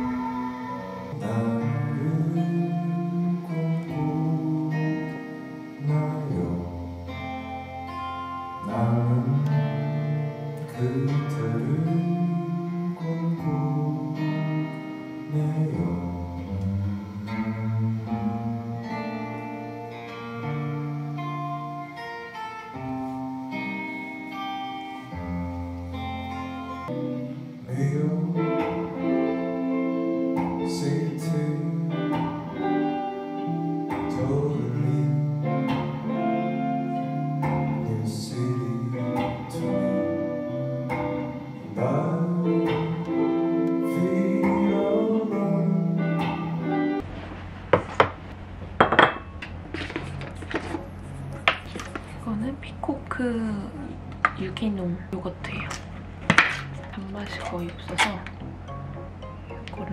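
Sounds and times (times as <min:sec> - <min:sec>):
man singing: 0:00.0 - 0:07.4, 0:08.5 - 0:19.5, 0:26.3 - 0:29.7, 0:30.4 - 0:36.2, 0:37.2 - 0:47.0
guitars playing: 0:00.0 - 0:59.9.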